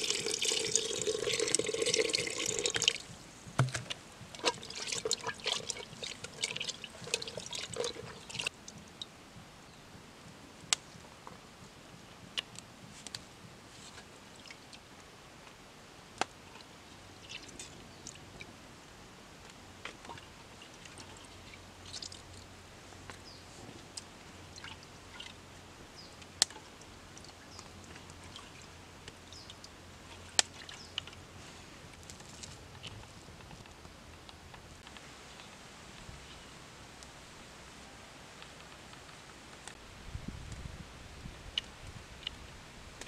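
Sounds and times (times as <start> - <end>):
water dripping: 0.0 - 9.1, 19.8 - 22.5, 24.0 - 25.4, 26.2 - 31.2
faint wet handling sounds: 0.0 - 9.8, 19.4 - 37.1.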